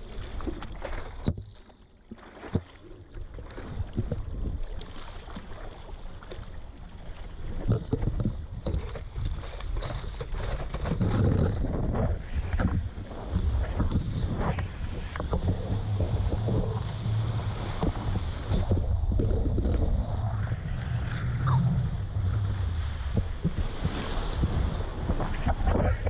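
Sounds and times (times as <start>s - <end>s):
water splashing against surfboard: 0.0s - 26.0s
wind on microphone: 7.5s - 26.0s.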